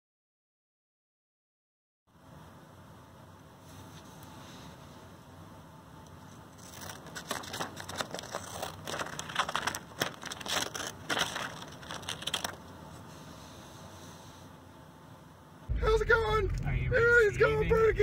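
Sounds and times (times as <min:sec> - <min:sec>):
scissors snipping paper: 0:06.6 - 0:12.6.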